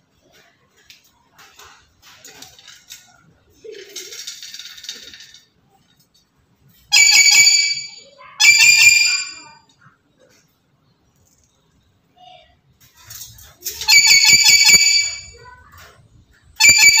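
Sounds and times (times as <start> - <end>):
parrot calling loudly: 6.9 - 9.6, 13.9 - 15.3.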